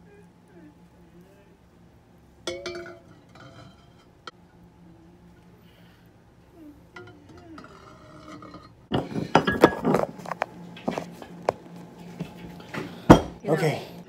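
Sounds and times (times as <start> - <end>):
utensils and dishes clinking: 2.4 - 4.4, 6.9 - 11.4.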